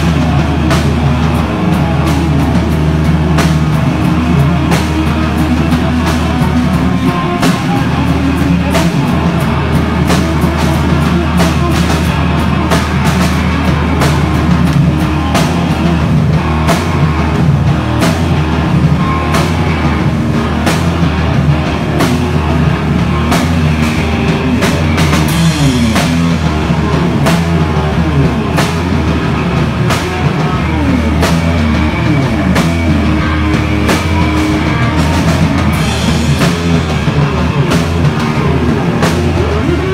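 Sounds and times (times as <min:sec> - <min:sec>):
live hard rock band: 0:00.0 - 0:39.9
pounding drum kit: 0:00.0 - 0:39.9.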